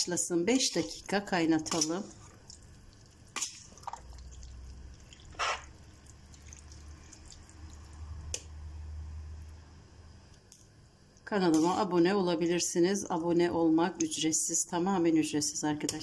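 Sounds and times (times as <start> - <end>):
faint low hum: 0.0 - 16.0
spatula stirring thick sauce: 0.6 - 7.9.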